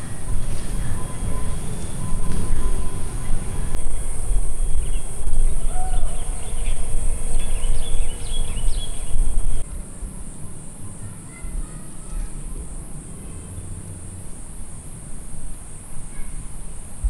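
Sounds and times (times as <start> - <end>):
low rumble: 0.0 - 10.1
high insect drone: 0.0 - 17.0.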